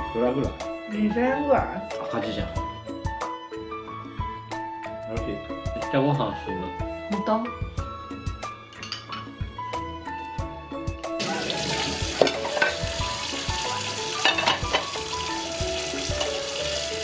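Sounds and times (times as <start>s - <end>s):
background music with plucked notes: 0.0s - 17.0s
dishes knocking: 8.8s - 9.4s, 11.5s - 13.0s, 14.2s - 15.0s
tap water running into sink: 11.2s - 17.0s.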